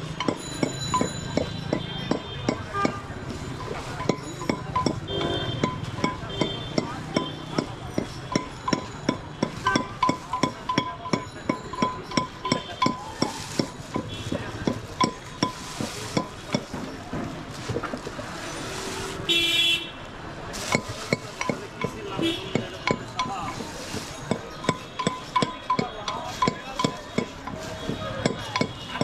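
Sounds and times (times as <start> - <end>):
utensil knocking rhythmically: 0.0 - 18.3, 20.2 - 29.0
vehicle horn: 5.1 - 5.7, 19.2 - 20.0, 22.2 - 22.7.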